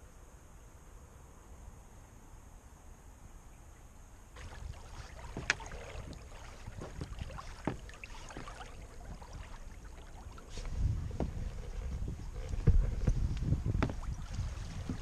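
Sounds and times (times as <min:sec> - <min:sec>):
faint steady hiss: 0:00.0 - 0:15.0
low wind rumble: 0:00.0 - 0:15.0
water slapping against boat hull: 0:04.4 - 0:15.0.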